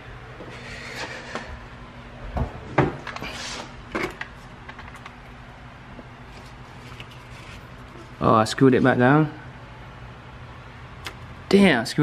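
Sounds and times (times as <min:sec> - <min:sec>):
knocks and clunks of handling: 0:02.4 - 0:03.2.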